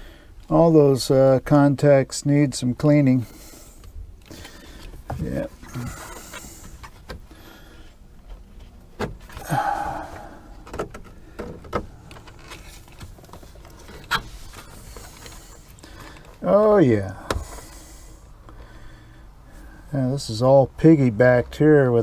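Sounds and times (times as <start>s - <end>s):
wires rustling: 7.9s - 16.7s.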